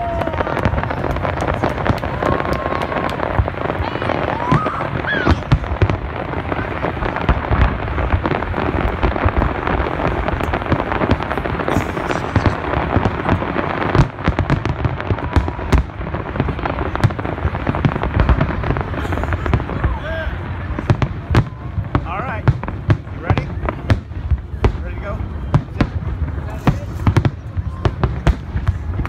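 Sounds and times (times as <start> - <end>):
deep fireworks booms: 0.0 - 29.0
fireworks crackling and popping: 0.0 - 29.0.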